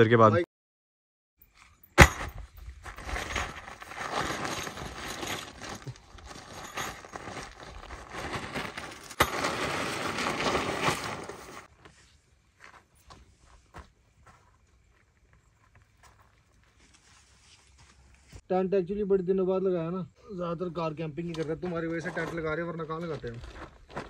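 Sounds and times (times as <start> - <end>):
tent poles and gear clattering: 1.4 - 11.9
tent fabric rustling: 2.7 - 12.1.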